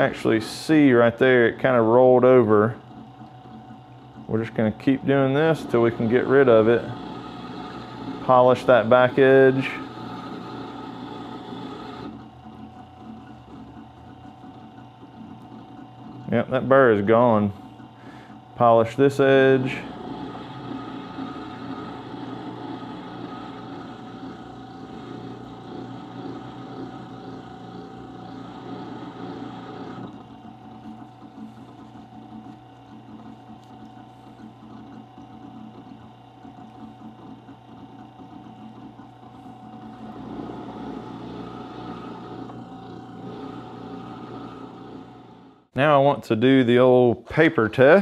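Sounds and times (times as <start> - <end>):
sharpener motor humming: 0.0 - 45.7
chisel rubbing on strop wheel: 4.4 - 12.7, 16.0 - 45.7.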